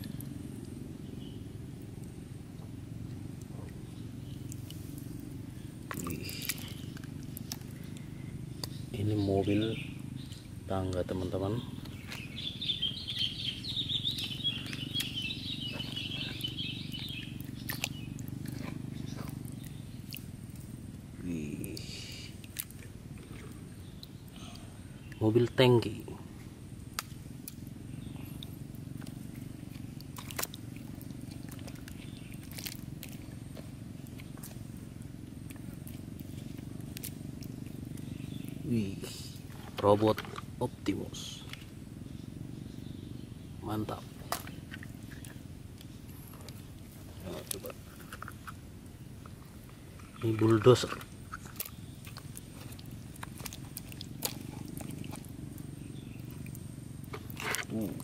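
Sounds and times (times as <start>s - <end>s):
low rumbling motor hum: 0.0s - 58.0s
wet mud squelching: 3.3s - 25.6s, 26.8s - 41.9s, 43.9s - 58.0s
water splashes: 5.8s - 7.8s, 29.2s - 33.5s.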